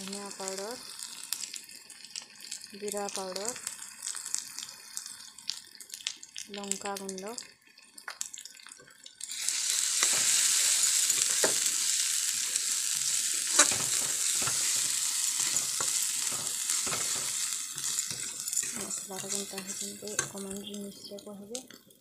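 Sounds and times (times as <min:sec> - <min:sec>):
spices sizzling in hot oil: 0:00.0 - 0:22.0
metal spatula scraping pan: 0:13.5 - 0:20.8.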